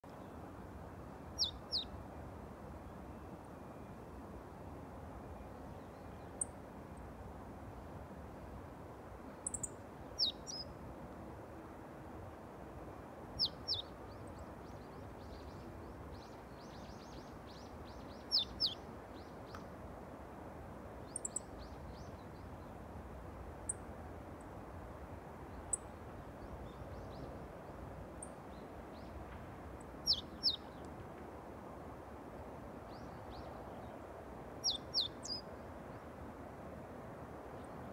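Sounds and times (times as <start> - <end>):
low background noise: 0.0 - 37.9.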